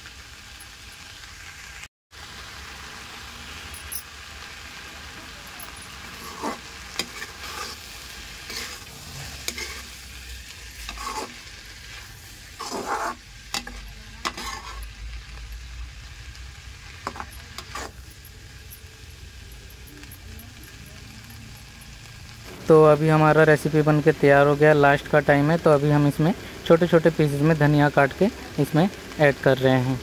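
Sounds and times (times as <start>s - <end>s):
light frying sizzle: 0.0s - 30.0s
spatula scraping metal pan: 5.6s - 15.1s, 17.0s - 18.8s.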